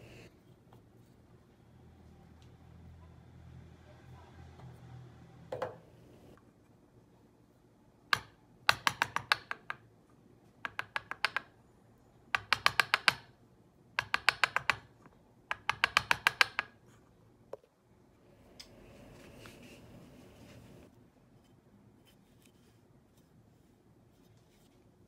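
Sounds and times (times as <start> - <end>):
chisel tapping into wood: 10.7 - 11.5, 12.4 - 13.3, 14.0 - 14.9, 15.5 - 16.8
soft scraping: 18.7 - 24.9.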